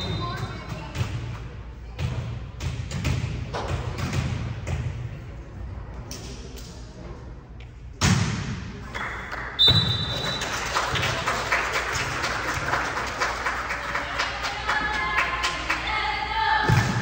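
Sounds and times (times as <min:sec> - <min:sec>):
heavy thuds echoing in hall: 0:00.0 - 0:05.2, 0:07.9 - 0:08.9, 0:16.6 - 0:17.0.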